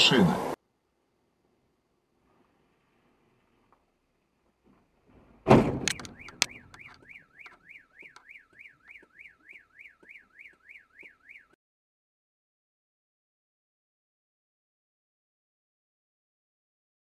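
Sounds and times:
vehicle collision crunch: 0:04.6 - 0:11.1
sharp clacks: 0:05.7 - 0:09.2
car alarm sweeping tone: 0:05.8 - 0:11.6.

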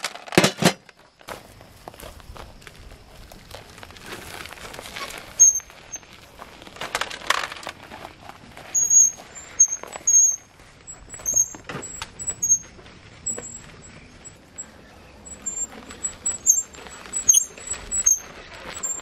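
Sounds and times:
gravel rattling in wheelbarrow: 0:00.0 - 0:19.0
short high-pitched squeaks: 0:04.9 - 0:06.2, 0:08.7 - 0:19.0.

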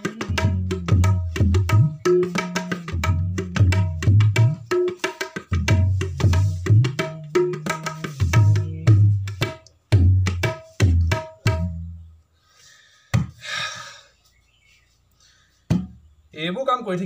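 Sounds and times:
tabla playing: 0:00.0 - 0:12.1.

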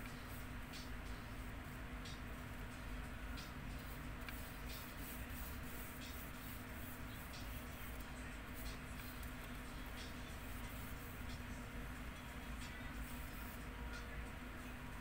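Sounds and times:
low room hum: 0:00.0 - 0:15.0
paintbrush swishing on paper: 0:03.4 - 0:11.5.

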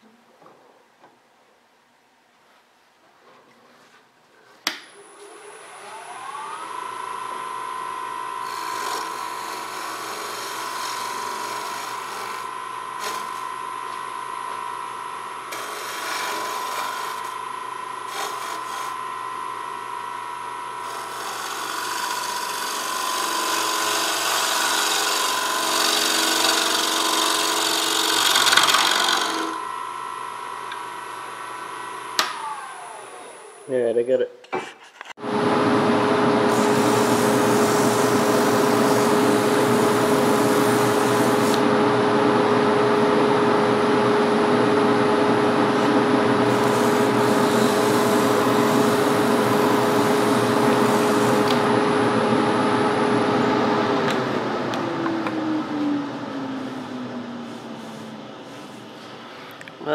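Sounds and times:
lathe motor whine: 0:05.0 - 0:33.7, 0:35.2 - 0:59.9
gouge scraping wood: 0:08.4 - 0:13.5, 0:15.5 - 0:17.4, 0:18.0 - 0:19.0, 0:20.8 - 0:29.6, 0:36.5 - 0:41.6, 0:46.4 - 0:51.6.

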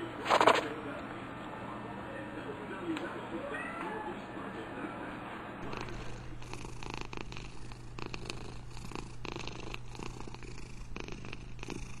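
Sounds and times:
cat purring: 0:05.6 - 0:12.0.

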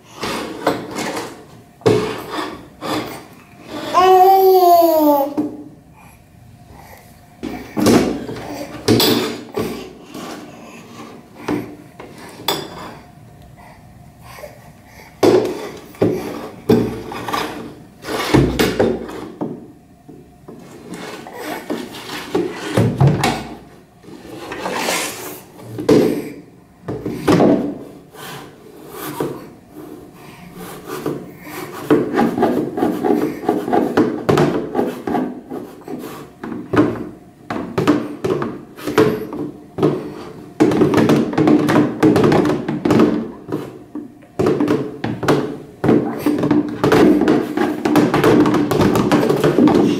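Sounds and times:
plastic tub knocking on tiles: 0:21.7 - 0:23.6, 0:31.8 - 0:35.4, 0:36.4 - 0:43.8, 0:44.4 - 0:49.9.

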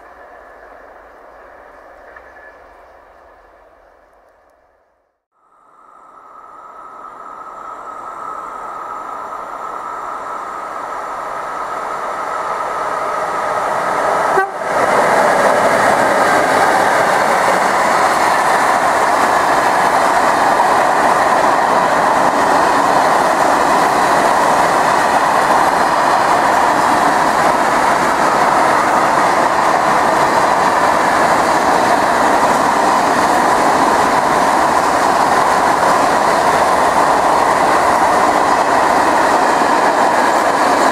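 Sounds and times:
train wheels clattering on rails: 0:13.5 - 0:40.9
train horn: 0:14.3 - 0:14.7.

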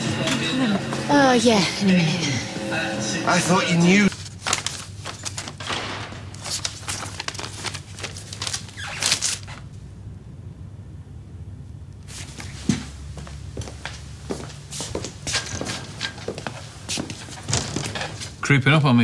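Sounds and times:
paper rustling: 0:04.1 - 0:09.6
steady low hum: 0:09.6 - 0:19.0.

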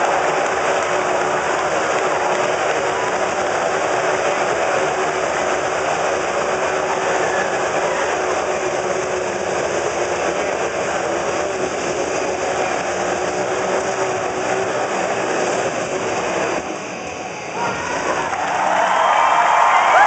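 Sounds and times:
motorcycle engines droning: 0:00.0 - 0:20.0.

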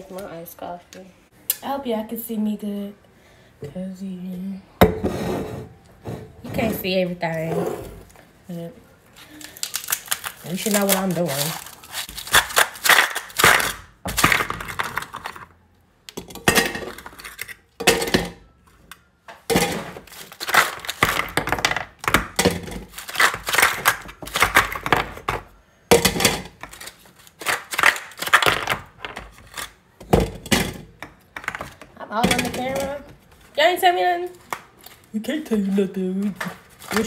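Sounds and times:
kitchen items clattering on counter: 0:19.5 - 0:26.8, 0:30.0 - 0:33.2.

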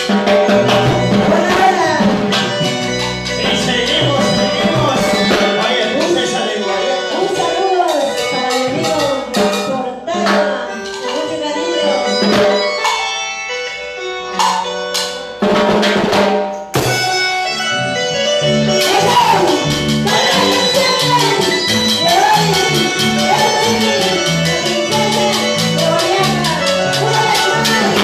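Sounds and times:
drums and percussion: 0:00.0 - 0:28.0
woman singing into a microphone: 0:20.1 - 0:28.0.

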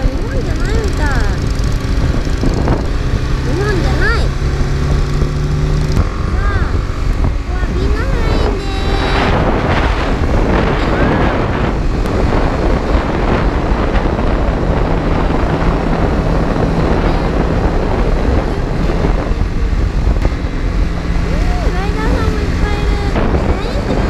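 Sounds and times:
motorcycle engine running: 0:00.0 - 0:24.0
wind rushing over microphone: 0:00.0 - 0:24.0.

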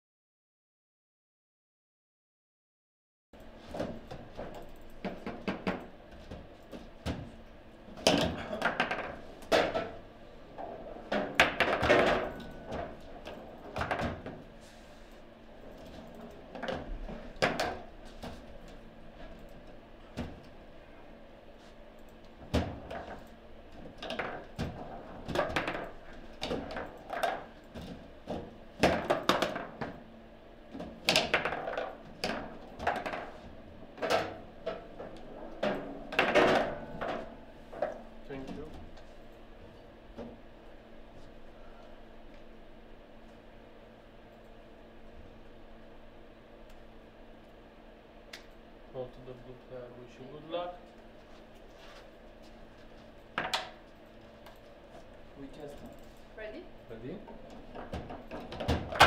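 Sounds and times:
foosball ball clacks and knocks: 0:08.0 - 0:10.0, 0:11.1 - 0:14.4, 0:23.8 - 0:30.0, 0:30.8 - 0:38.1, 0:57.3 - 0:59.0.

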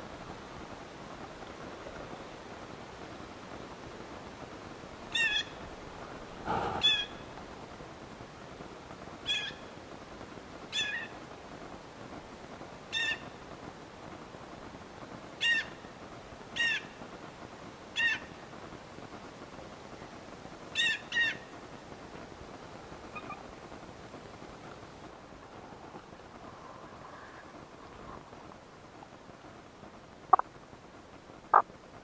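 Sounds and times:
turkey calls: 0:05.1 - 0:07.4.

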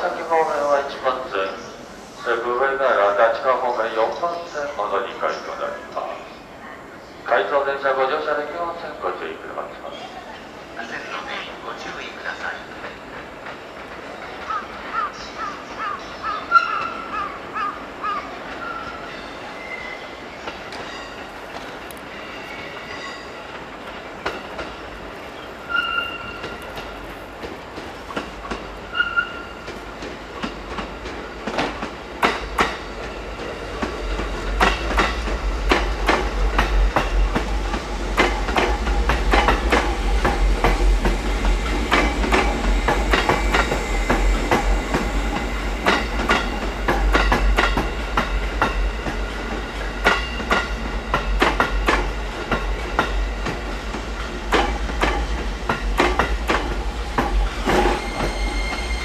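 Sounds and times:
deep train rumble: 0:00.0 - 0:59.0
train wheels clicking over rail joints: 0:22.8 - 0:59.0
high squeals: 0:25.7 - 0:26.6, 0:57.4 - 0:59.0.

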